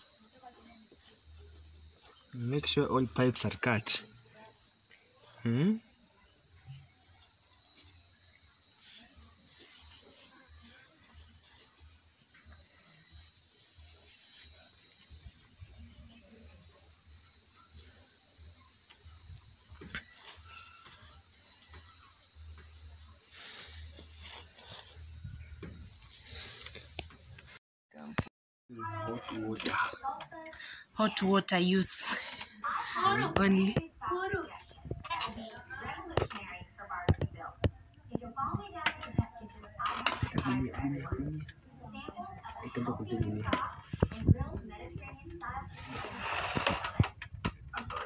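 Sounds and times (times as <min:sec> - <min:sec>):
insects trilling: 0:00.0 - 0:48.0.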